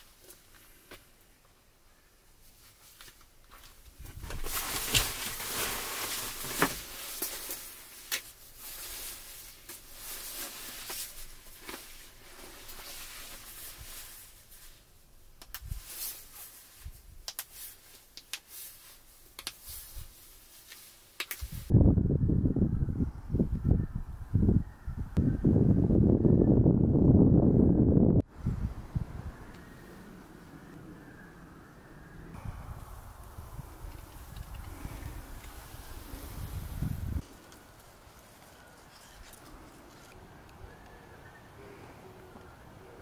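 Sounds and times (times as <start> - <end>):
jacket fabric rustling: 2.5 - 15.0.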